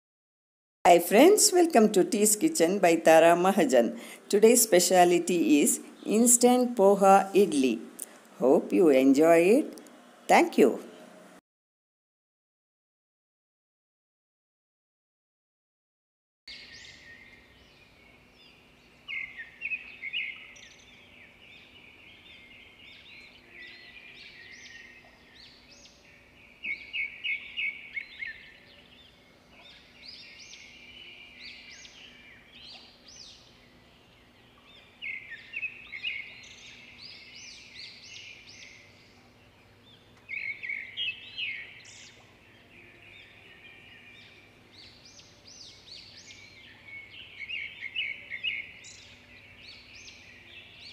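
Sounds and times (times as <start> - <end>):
birds chirping and singing: 1.0 - 9.6, 16.5 - 50.9.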